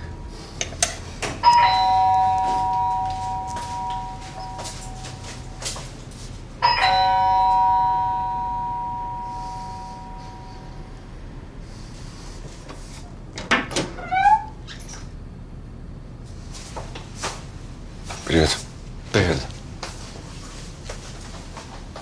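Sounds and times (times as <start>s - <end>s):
two-note electronic door chime: 1.4s - 5.6s, 6.6s - 11.0s.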